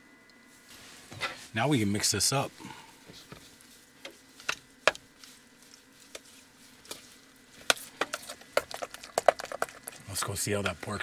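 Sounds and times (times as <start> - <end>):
spoon stirring thick mixture: 3.1 - 11.0.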